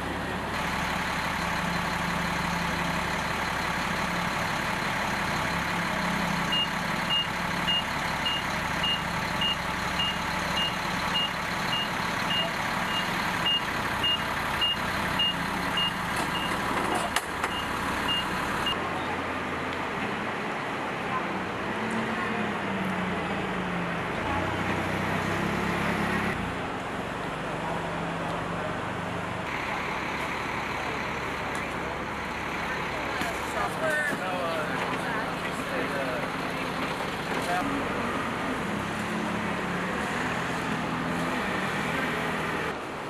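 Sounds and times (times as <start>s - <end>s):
forklift engine running: 0.0s - 21.2s, 21.8s - 43.0s
reversing alarm beeping: 6.5s - 16.6s, 17.5s - 18.8s.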